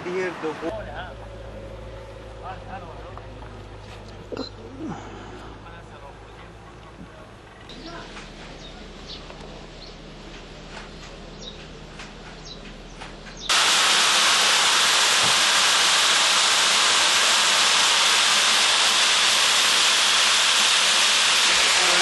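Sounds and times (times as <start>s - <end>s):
loud steady rushing hiss: 13.5s - 22.0s.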